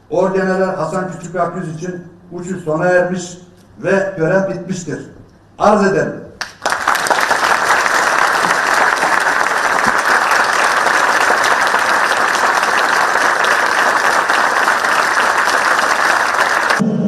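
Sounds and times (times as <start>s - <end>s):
large audience applauding: 6.4s - 16.8s.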